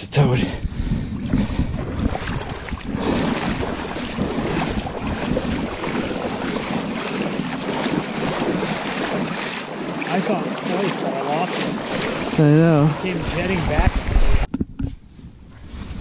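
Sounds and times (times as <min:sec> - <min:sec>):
wind buffeting microphone: 0:00.3 - 0:09.4, 0:11.7 - 0:16.0
river water rushing and splashing: 0:02.0 - 0:14.5.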